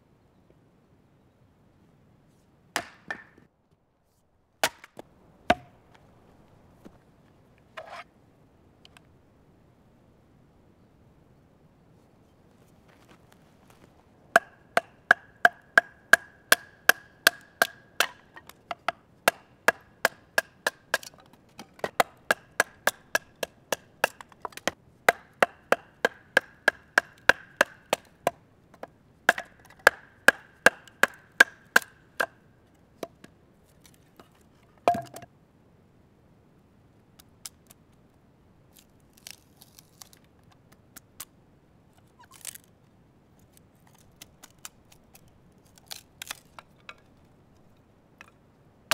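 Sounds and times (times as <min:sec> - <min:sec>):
wood knocking on knife blade: 0:34.2 - 0:35.3
wood cracking: 0:38.8 - 0:41.3, 0:42.2 - 0:42.8, 0:43.4 - 0:48.4.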